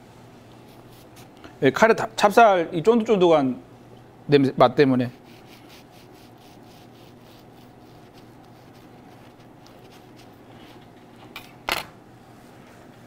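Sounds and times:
bread knife sawing through loaf: 5.1s - 10.7s.

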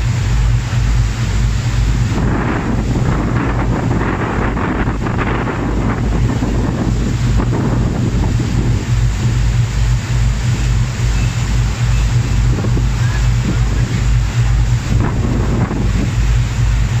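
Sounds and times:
churning wake rushing: 0.0s - 17.0s
low engine drone: 0.0s - 17.0s
wind buffeting microphone: 0.0s - 17.0s.

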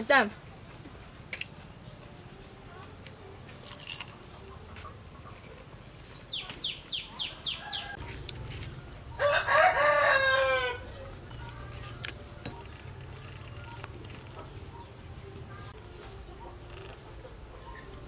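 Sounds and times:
rooster crowing: 7.4s - 8.0s, 9.1s - 11.0s.

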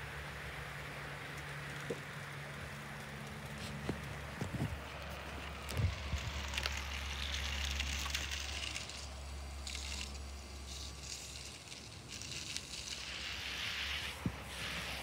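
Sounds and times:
wind rustling foliage: 0.0s - 15.0s
wind buffeting microphone: 4.3s - 4.9s.

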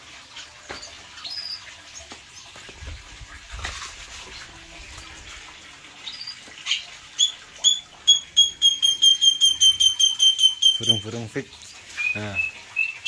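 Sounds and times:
bird chirping: 6.0s - 11.1s.

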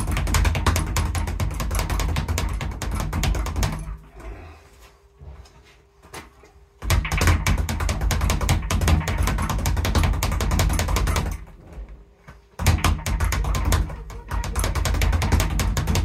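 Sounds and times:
speed bag rattling: 0.0s - 4.1s, 6.8s - 11.6s, 12.6s - 16.0s.

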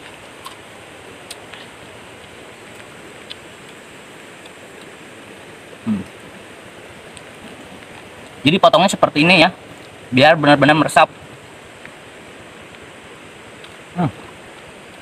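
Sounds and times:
low voice sound: 5.9s - 6.1s.

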